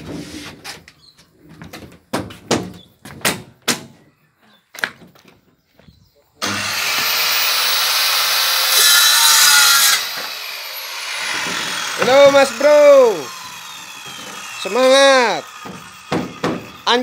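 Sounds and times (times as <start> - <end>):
circular saw cutting plywood: 6.4 - 17.0
knocks on wood: 15.6 - 16.7.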